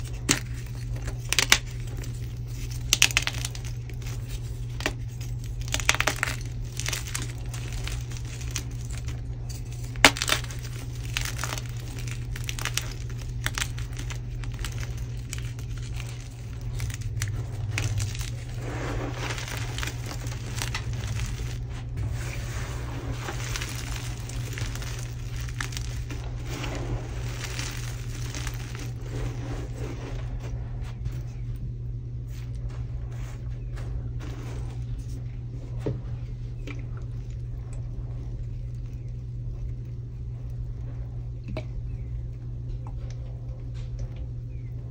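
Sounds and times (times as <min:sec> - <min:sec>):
hands raking through chalk: 0:00.0 - 0:31.1
chalk crunching and crackling: 0:00.0 - 0:31.4.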